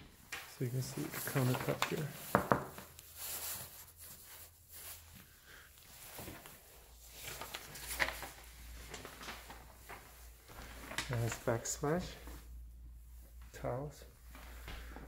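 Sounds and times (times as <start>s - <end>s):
low room hum: 2.9s - 15.0s.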